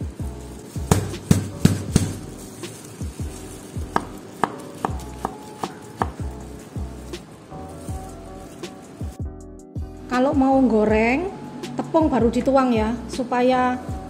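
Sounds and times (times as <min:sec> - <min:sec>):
background music: 0:00.0 - 0:14.0
knife chopping on cutting board: 0:00.9 - 0:02.2, 0:04.0 - 0:06.3.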